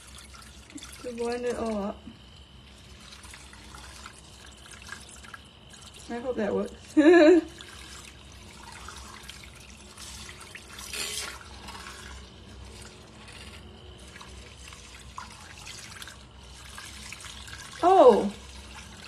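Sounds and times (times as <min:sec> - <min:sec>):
milk frother whisking batter: 0:02.8 - 0:19.0.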